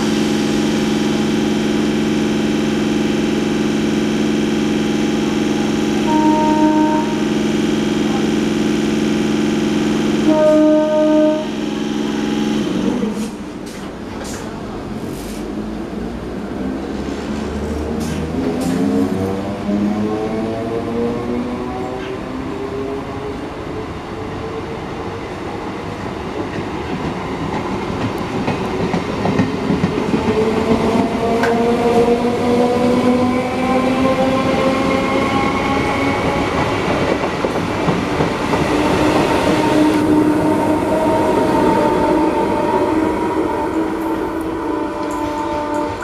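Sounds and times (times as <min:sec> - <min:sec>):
train wheels rumbling on rail: 0:00.0 - 0:46.0.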